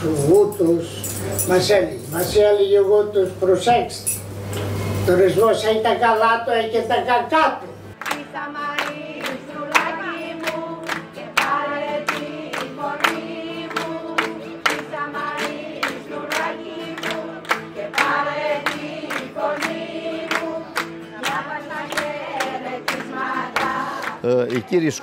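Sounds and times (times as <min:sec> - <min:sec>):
group of voices singing: 0:08.0 - 0:25.0.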